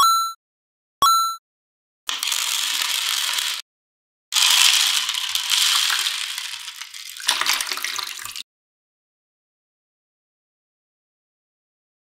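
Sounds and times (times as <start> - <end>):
metal balls rattling and clattering: 2.1 - 3.6, 4.4 - 8.4.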